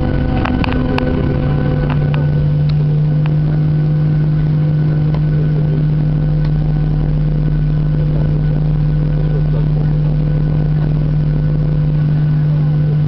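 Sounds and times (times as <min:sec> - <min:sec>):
airplane cabin engine drone: 0:00.0 - 0:13.0.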